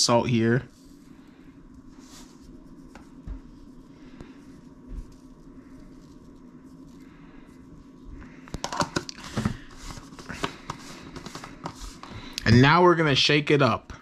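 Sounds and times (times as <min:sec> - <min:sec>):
low steady hum: 0:00.0 - 0:14.0
plastic containers clicking and knocking: 0:08.6 - 0:09.6.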